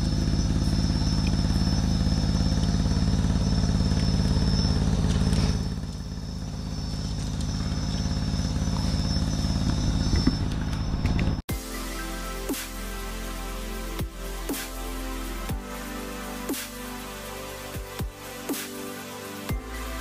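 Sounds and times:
small engine chugging: 0.0s - 11.3s.

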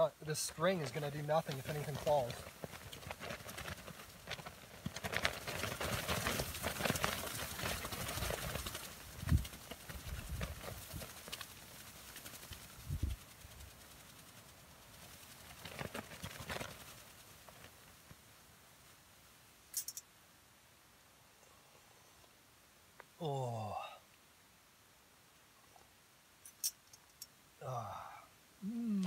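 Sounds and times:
tarp flapping in wind: 0.3s - 18.4s.

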